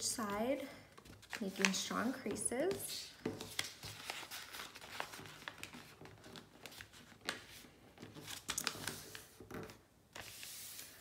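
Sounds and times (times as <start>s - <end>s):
paper being folded: 0.9s - 2.8s, 3.4s - 11.0s.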